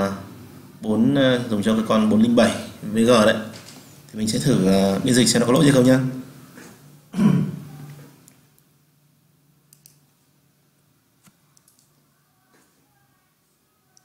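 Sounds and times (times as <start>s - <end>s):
faint low hum: 0.0s - 14.0s
computer mouse clicks: 9.7s - 10.0s, 11.2s - 12.0s.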